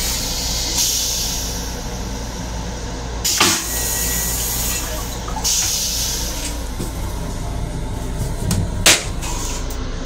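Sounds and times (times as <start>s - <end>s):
train rumble: 0.0s - 10.0s
toilet flush whoosh: 3.3s - 6.5s.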